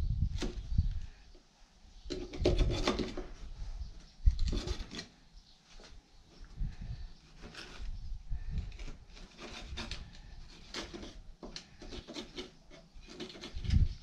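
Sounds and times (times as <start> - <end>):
utility knife scraping carpet: 8.7 - 14.0.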